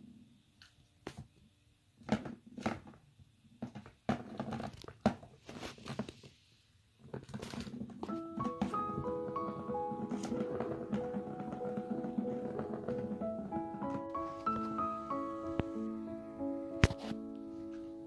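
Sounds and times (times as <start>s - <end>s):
music: 8.0s - 18.0s.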